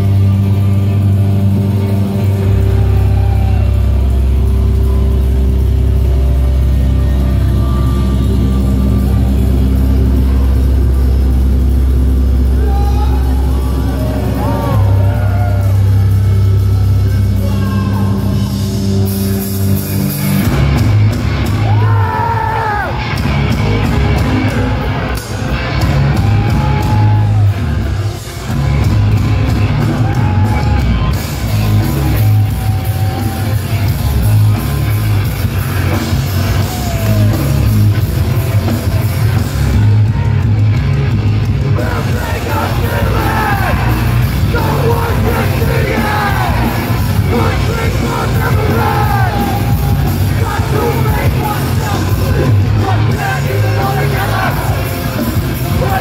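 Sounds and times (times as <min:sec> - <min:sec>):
distorted guitars and bass: 0:00.0 - 0:56.0
pounding drums: 0:22.9 - 0:56.0
shouted and sung vocal: 0:41.7 - 0:56.0.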